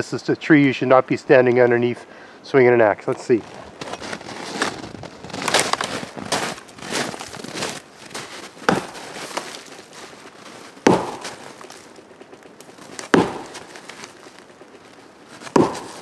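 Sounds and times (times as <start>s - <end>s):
axe striking tree trunk: 8.6s - 9.5s, 10.8s - 11.8s, 12.9s - 14.2s, 15.4s - 16.0s.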